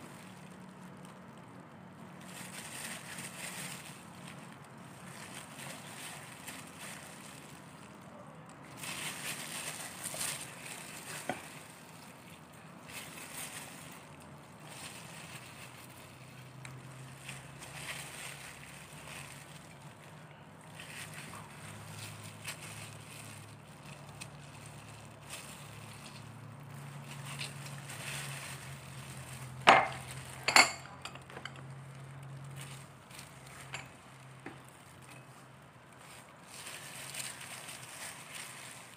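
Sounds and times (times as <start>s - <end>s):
plastic gloves rustling: 0.0s - 38.9s
wet rubbing on chicken skin: 8.7s - 30.4s.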